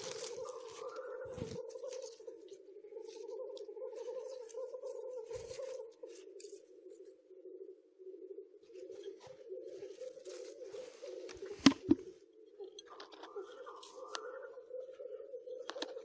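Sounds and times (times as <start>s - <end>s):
footsteps crunching dry leaves: 0.0s - 2.4s, 10.1s - 11.6s.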